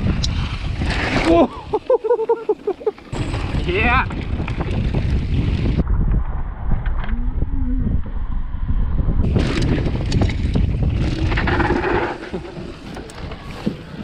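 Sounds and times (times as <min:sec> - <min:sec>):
wind buffeting microphone: 0:00.0 - 0:01.9, 0:03.1 - 0:14.0
tyres rolling over dirt trail: 0:00.0 - 0:05.8, 0:09.2 - 0:14.0
bike knocks and rattles: 0:03.0 - 0:05.8, 0:09.2 - 0:14.0.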